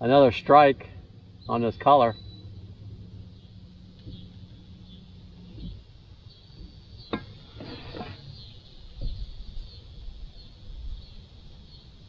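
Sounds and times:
bird chirps: 1.2 - 12.0.

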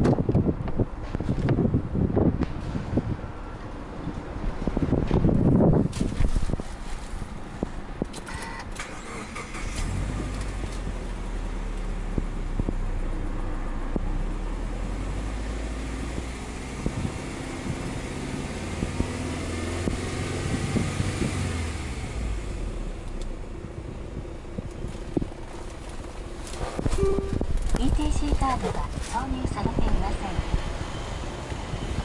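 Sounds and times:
car engine cranking and starting: 8.0 - 29.2
car engine idling: 21.6 - 28.4.

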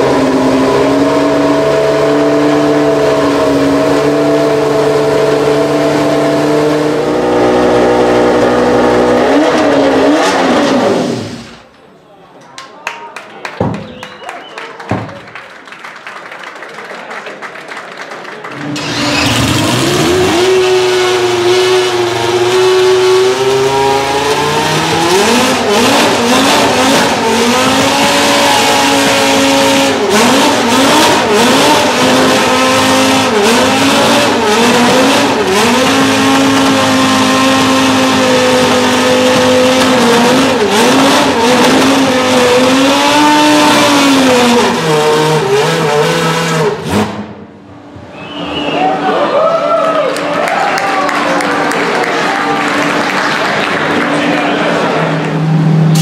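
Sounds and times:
racing engine idling and revving: 0.0 - 11.6, 18.5 - 48.0, 52.6 - 56.0.

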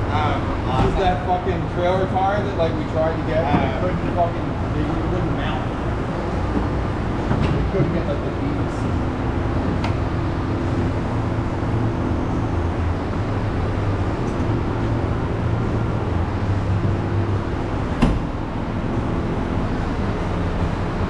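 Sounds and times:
low motor drone: 0.0 - 21.0.

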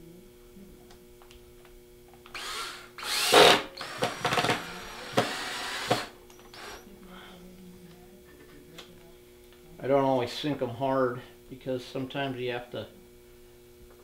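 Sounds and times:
cordless drill driving screws: 2.3 - 6.8.

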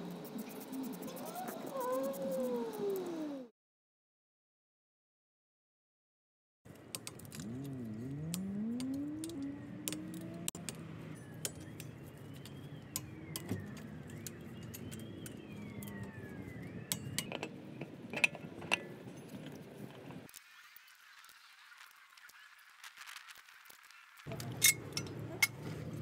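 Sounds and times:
vehicle engine rising in pitch: 7.2 - 17.5.

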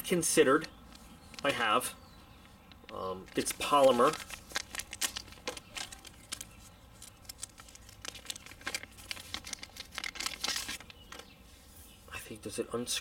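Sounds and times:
plastic packaging crinkling: 0.9 - 1.8, 2.6 - 11.3.

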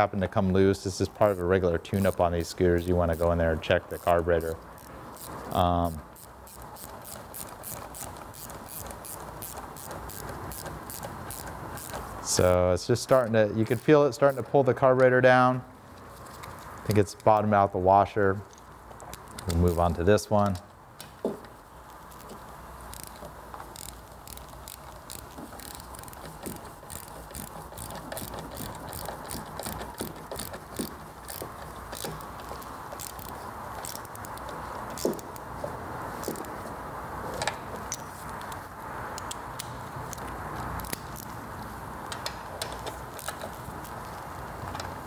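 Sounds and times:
background hiss: 0.0 - 45.0
ratchet clicking: 1.2 - 14.5, 18.5 - 20.6, 21.9 - 35.5, 42.0 - 45.0.

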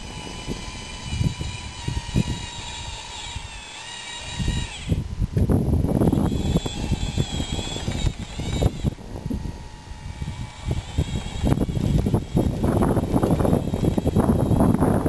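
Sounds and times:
model bulldozer motors whining: 0.0 - 15.0
gravel crunching and clattering: 10.4 - 14.9.

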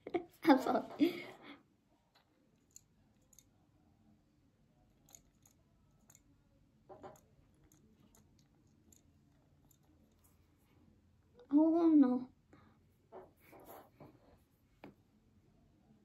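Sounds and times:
faint clicks and handling taps: 2.1 - 3.6, 4.9 - 10.5.

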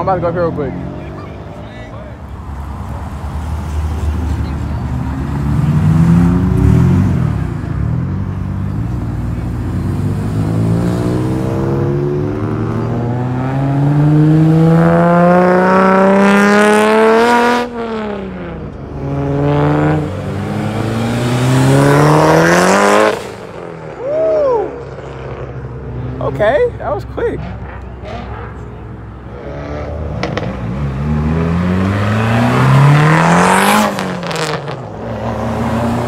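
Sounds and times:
car engine accelerating hard: 4.2 - 23.7, 29.4 - 36.0.

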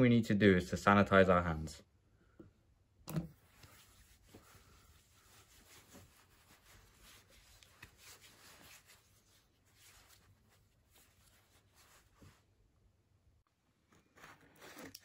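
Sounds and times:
hands rubbing together: 3.4 - 12.4.

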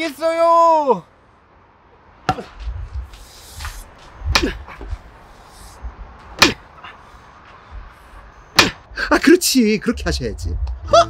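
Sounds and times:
wooden board striking body: 6.4 - 6.6, 8.6 - 8.8.

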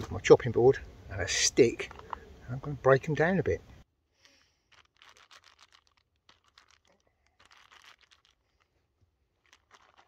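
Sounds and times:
plastic bag crinkling: 4.2 - 10.0.

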